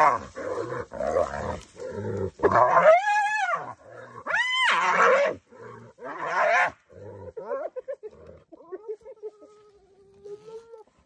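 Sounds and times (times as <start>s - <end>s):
hyenas growling: 0.0s - 8.7s.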